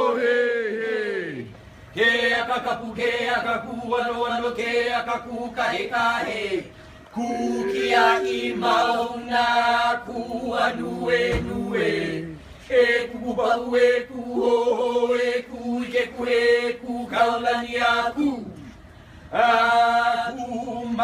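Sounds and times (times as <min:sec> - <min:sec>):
group of voices chanting: 0:05.7 - 0:14.6.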